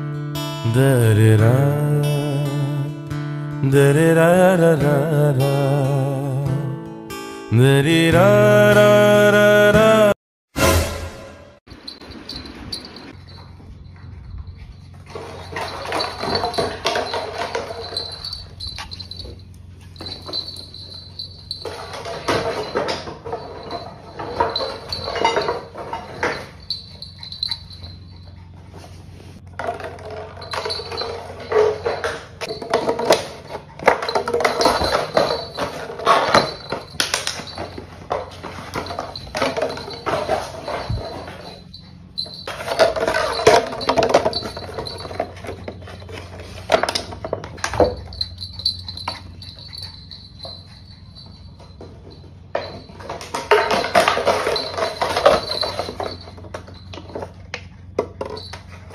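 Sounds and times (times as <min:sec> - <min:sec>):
toys clattering on floor: 0:15.1 - 0:27.8, 0:29.4 - 0:58.9.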